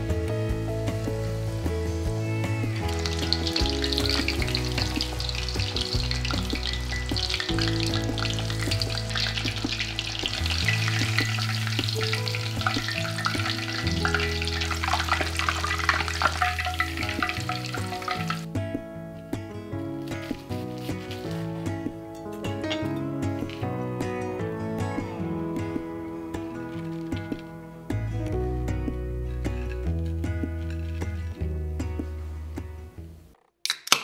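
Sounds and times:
chicken deep-frying in oil: 0.8s - 18.5s.

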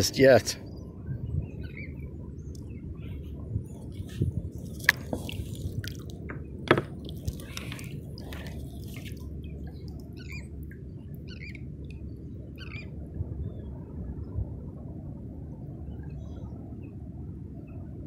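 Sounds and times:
water lapping and dripping: 3.7s - 12.1s
sharp knocks on kayak: 6.6s - 7.0s
bird chirping: 11.2s - 11.6s.

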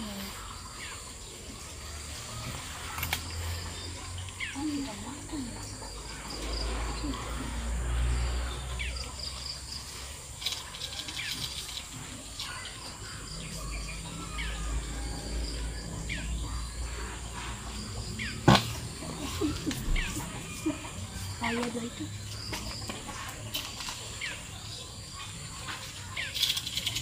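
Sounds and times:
birds chirping: 0.0s - 27.0s
high insect drone: 0.0s - 27.0s.

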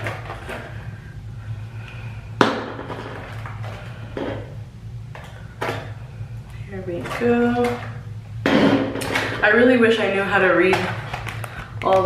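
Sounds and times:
packaging rustling: 10.8s - 12.0s.

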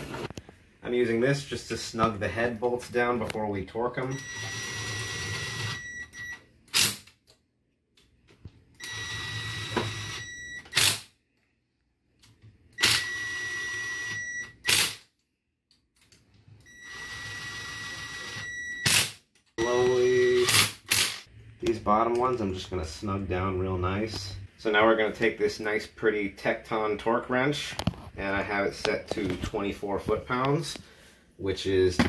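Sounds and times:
cordless drill whining: 4.2s - 5.8s, 8.8s - 10.3s, 12.8s - 14.3s, 16.7s - 18.5s.

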